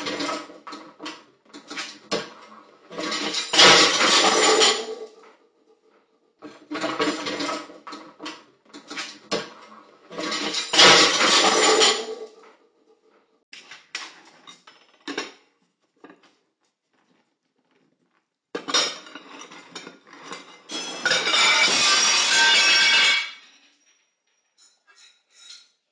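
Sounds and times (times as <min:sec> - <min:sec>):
plates crashing: 0:00.0 - 0:05.1, 0:06.5 - 0:12.3, 0:18.6 - 0:23.6
dishes clattering and scraping: 0:00.0 - 0:05.2, 0:06.4 - 0:12.4, 0:18.6 - 0:23.8.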